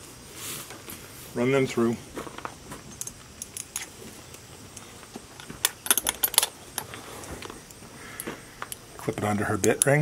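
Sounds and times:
harness buckles clinking and jingling: 5.4s - 7.5s.

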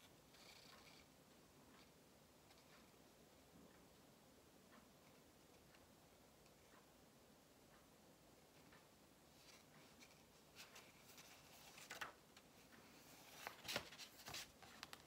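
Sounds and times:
book pages riffled by hand: 13.2s - 15.0s.

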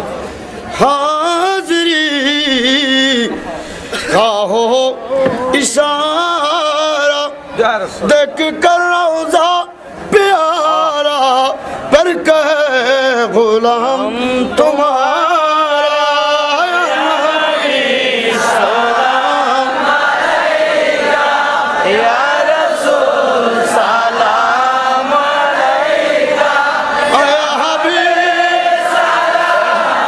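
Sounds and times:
person singing slow chant: 8.3s - 30.0s.

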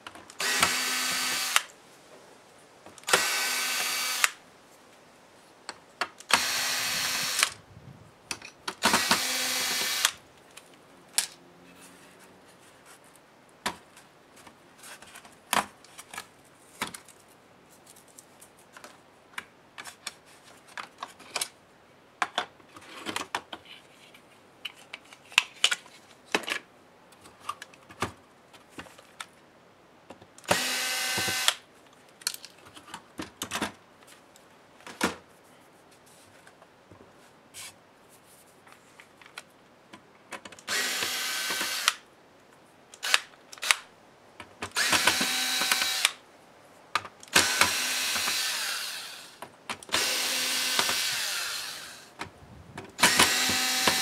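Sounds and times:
cordless drill whirring: 0.4s - 1.7s, 3.1s - 4.4s, 6.3s - 7.6s, 8.8s - 10.2s, 30.5s - 31.6s, 40.7s - 42.0s, 44.7s - 46.2s, 47.3s - 52.1s, 53.0s - 54.0s.

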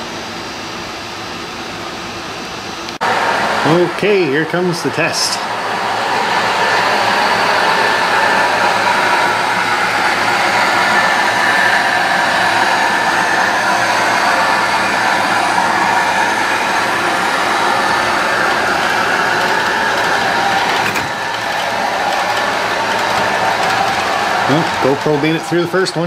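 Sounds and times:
wheels rolling on rails: 5.4s - 26.0s
model train motor whirring: 6.2s - 26.0s.

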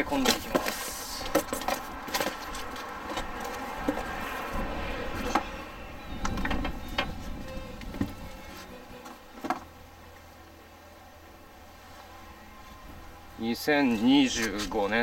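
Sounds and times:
cardboard boxes being handled: 0.1s - 4.4s
knocks and scrapes: 0.2s - 5.6s.

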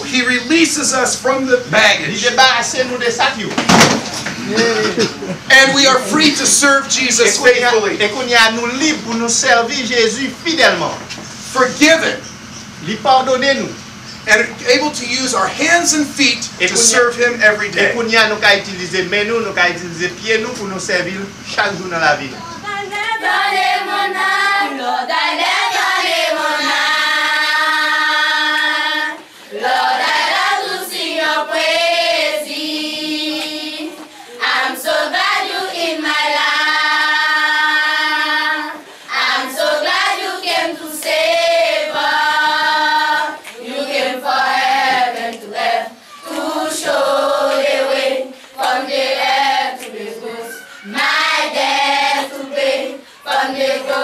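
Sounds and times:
children's choir singing: 4.3s - 10.0s, 22.6s - 54.0s.

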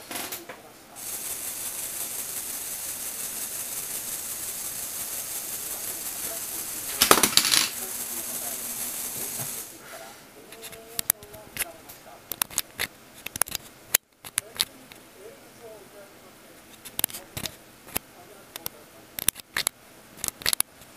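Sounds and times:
sharp clicks and rattles: 1.0s - 9.7s, 12.3s - 15.0s, 16.7s - 20.9s
toy motor and gears whirring: 1.0s - 9.8s.

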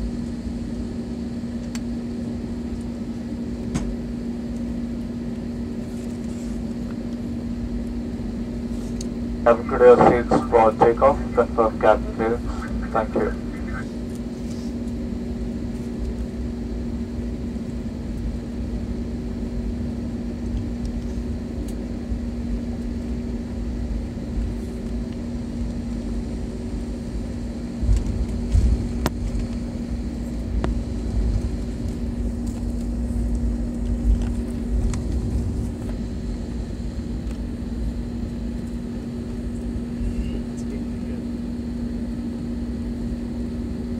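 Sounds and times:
jet engine hum: 0.0s - 43.9s
wheels rumbling on taxiway: 9.5s - 14.7s.

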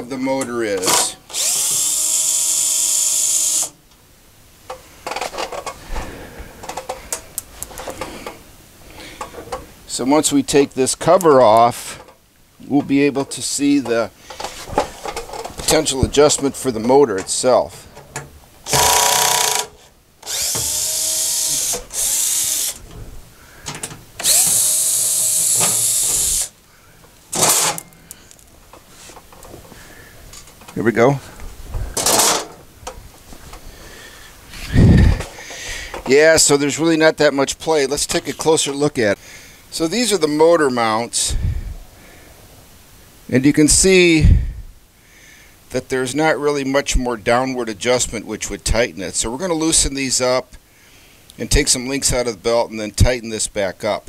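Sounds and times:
cordless drill running: 1.3s - 3.8s, 18.6s - 22.8s, 24.2s - 26.6s
loose screws clicking and rattling: 18.0s - 23.0s, 23.6s - 26.5s, 27.3s - 29.5s.

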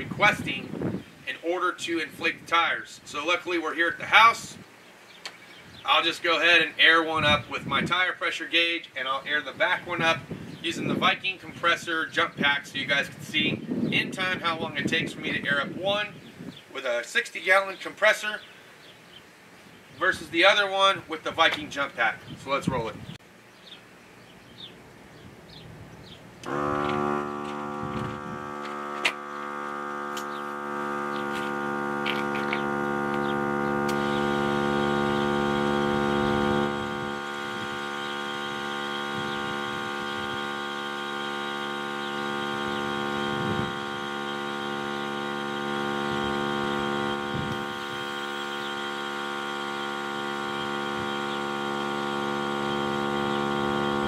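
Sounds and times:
air compressor humming: 26.4s - 54.0s.

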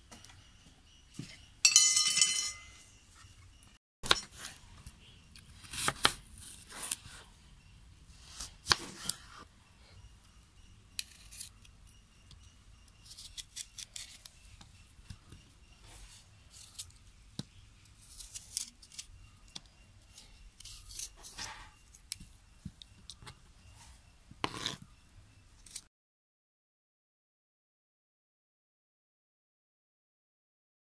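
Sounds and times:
knife crunching through apple: 5.4s - 7.2s, 13.0s - 14.4s, 18.0s - 19.2s.

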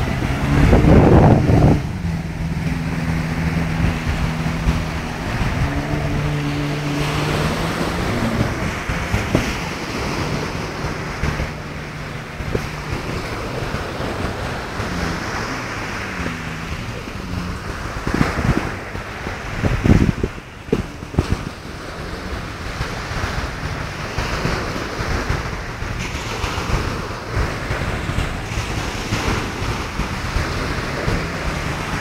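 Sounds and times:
jet ski engine droning: 0.0s - 32.0s
loud rush of noise: 0.0s - 32.0s
surf breaking on beach: 0.0s - 32.0s.

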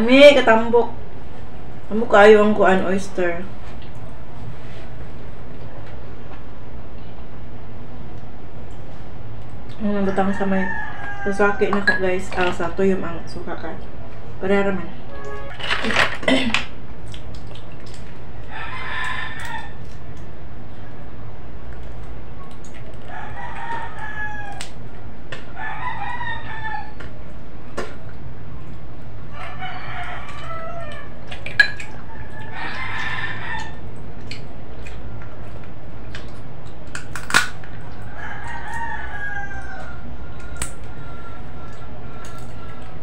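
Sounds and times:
low hum: 0.0s - 25.8s
roosters crowing: 10.0s - 12.0s, 18.3s - 19.8s, 23.0s - 27.2s, 29.2s - 31.3s, 31.9s - 34.1s, 37.8s - 43.0s.

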